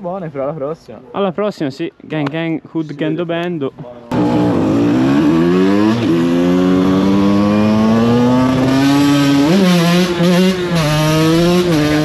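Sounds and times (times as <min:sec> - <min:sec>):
two-stroke engine revving high: 0:04.1 - 0:12.0.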